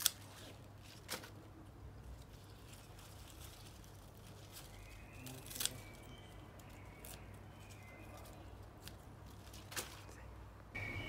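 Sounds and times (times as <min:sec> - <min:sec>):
faint clicks of leaves handled: 0:00.0 - 0:10.4
scissors snipping stems: 0:05.3 - 0:06.0.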